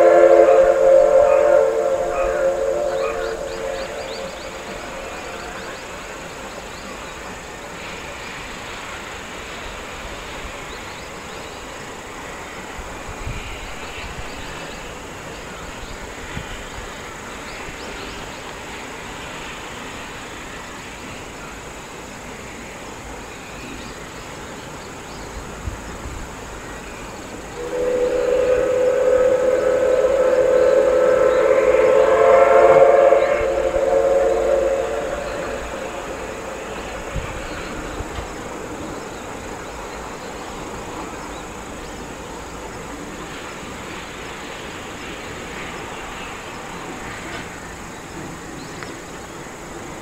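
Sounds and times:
steam locomotive whistle: 0.0 - 7.3, 27.4 - 40.0
outdoor background hiss: 0.0 - 50.0.

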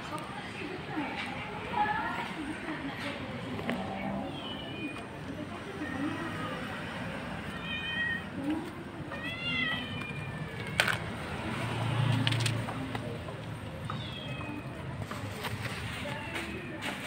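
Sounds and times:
cat meowing: 3.8 - 5.2, 7.4 - 8.4, 9.1 - 11.1, 13.9 - 14.8.

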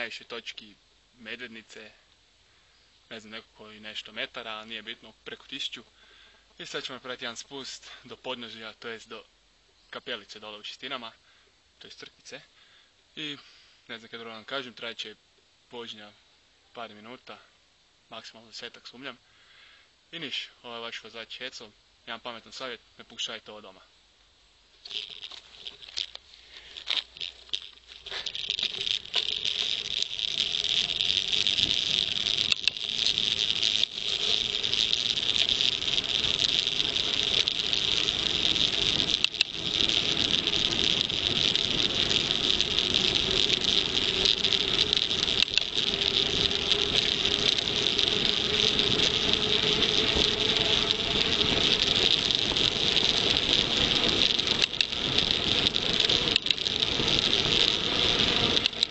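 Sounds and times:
bike coasting wind and tyre noise: 24.8 - 58.9.

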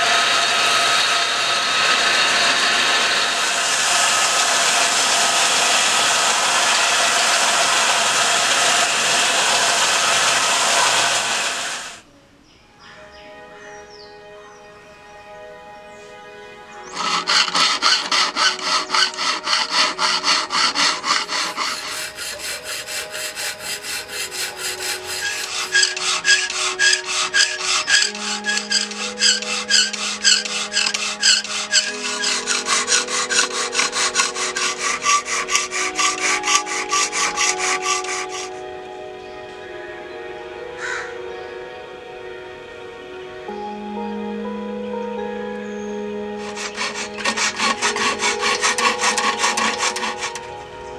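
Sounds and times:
hand file rasping on steel: 1.7 - 11.9, 16.9 - 38.6, 46.4 - 50.7.

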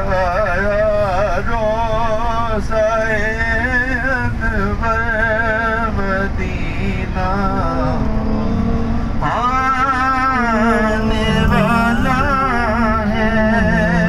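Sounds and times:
vehicle rumble: 0.0 - 14.0
person singing: 7.6 - 14.0.

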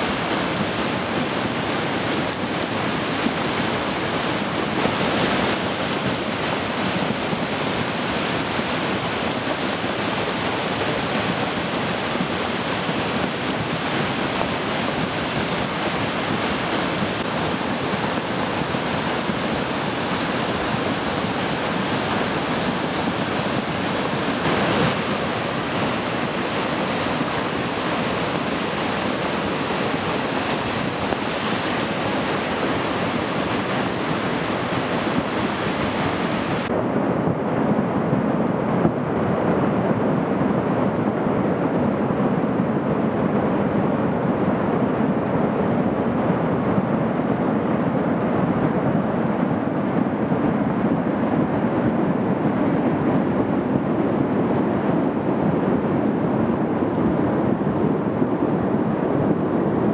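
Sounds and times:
creek water rushing: 0.0 - 36.7.

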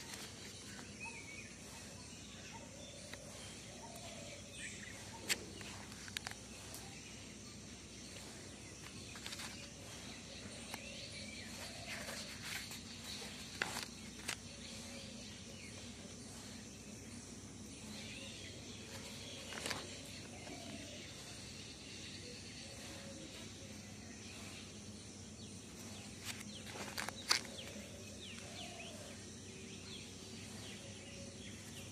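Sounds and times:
notebook pages turning: 0.0 - 1.2, 8.8 - 9.8, 10.6 - 15.0, 18.8 - 21.0, 26.0 - 28.7
faint background noise: 0.0 - 31.9.

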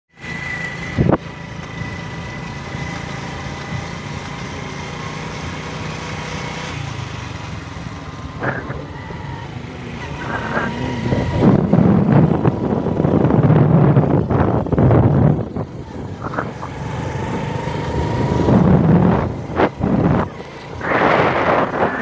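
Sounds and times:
motorcycle engine running: 0.2 - 22.0
wind noise: 0.9 - 1.3, 10.0 - 22.0.

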